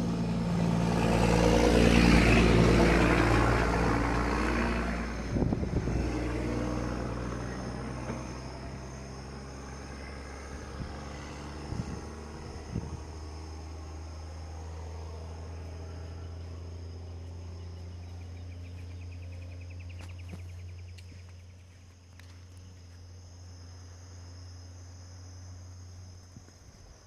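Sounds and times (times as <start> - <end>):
steady low drone: 0.0 - 21.0.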